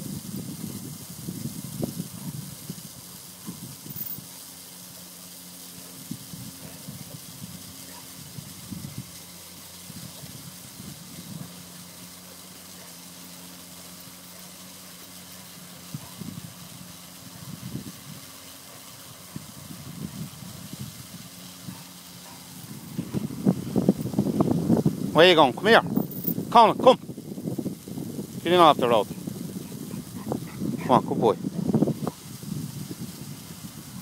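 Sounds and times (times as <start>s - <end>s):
even hiss: 0.0s - 34.0s
rustles: 0.6s - 34.0s.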